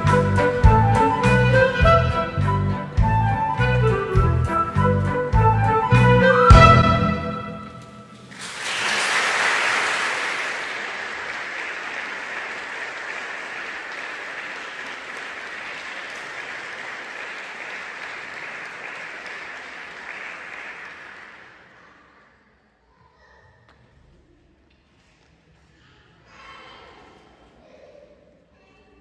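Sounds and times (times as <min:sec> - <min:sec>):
audience applause: 0:08.2 - 0:22.0.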